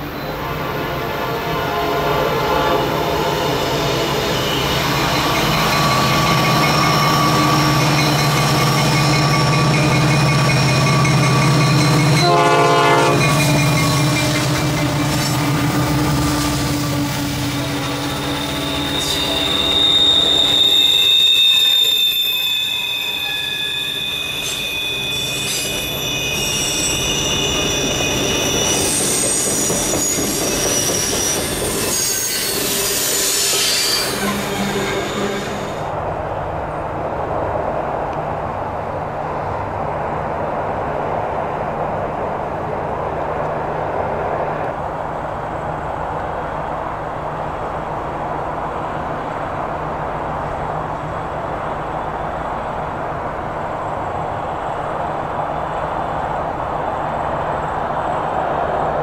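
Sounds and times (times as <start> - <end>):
train wheels squealing: 3.4 - 35.9.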